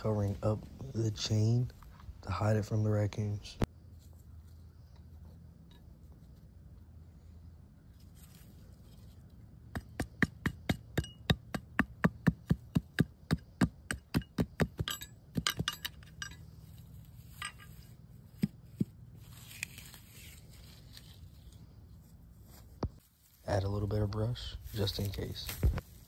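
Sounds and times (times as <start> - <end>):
hatchet chopping dirt: 9.6 - 16.2, 18.3 - 19.0.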